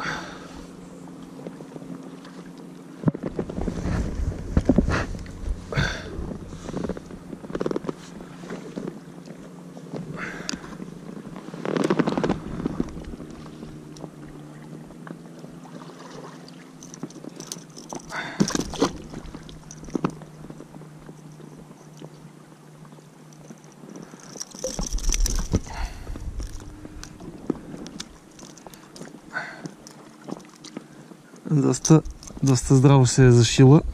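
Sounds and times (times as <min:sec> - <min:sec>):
bump with low rumble: 0:03.0 - 0:09.0, 0:24.9 - 0:28.2
scraping and rustling: 0:03.1 - 0:09.0, 0:11.0 - 0:13.7
small metal clicks: 0:23.3 - 0:25.8, 0:26.4 - 0:30.8.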